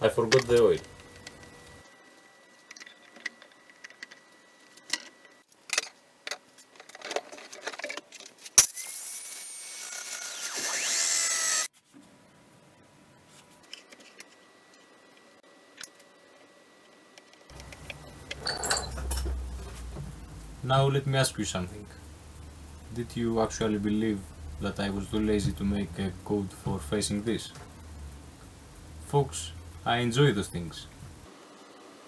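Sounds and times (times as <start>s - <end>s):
power drill running: 8.8s - 11.7s.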